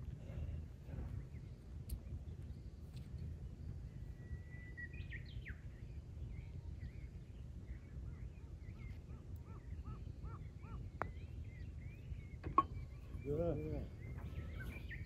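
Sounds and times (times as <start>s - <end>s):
birds chirping and singing: 0.2s - 15.0s
repeated arched bird notes: 8.7s - 15.0s.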